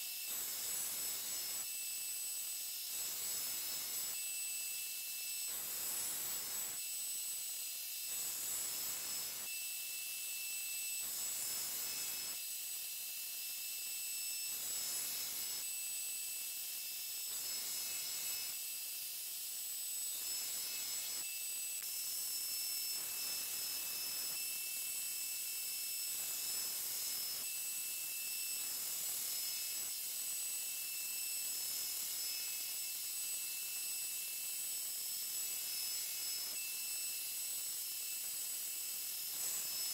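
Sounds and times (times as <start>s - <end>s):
blade grinding on belt: 19.9s - 39.9s.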